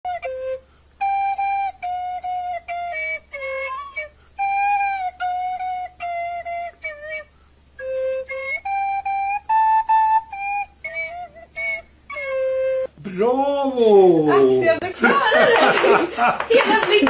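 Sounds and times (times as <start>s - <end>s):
plastic recorder playing tune: 0.1s - 13.0s.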